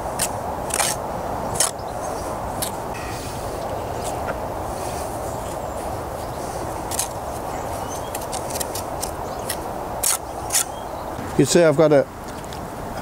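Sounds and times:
steady outdoor background hiss: 0.0s - 13.0s.

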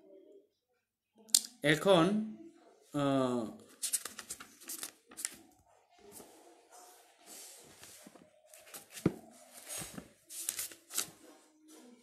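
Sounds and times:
paper rustling: 3.7s - 11.8s.

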